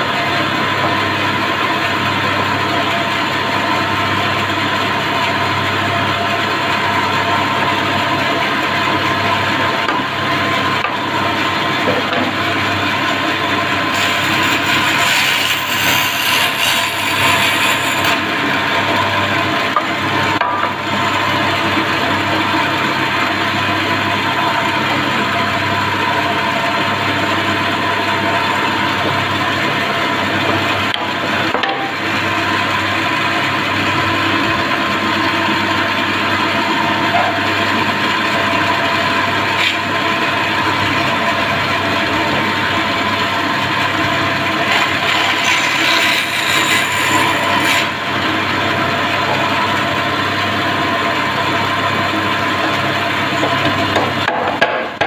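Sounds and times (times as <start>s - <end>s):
bandsaw motor humming: 4.4s - 54.3s
saw blade cutting wood: 13.9s - 18.4s, 39.5s - 40.2s, 44.5s - 48.1s.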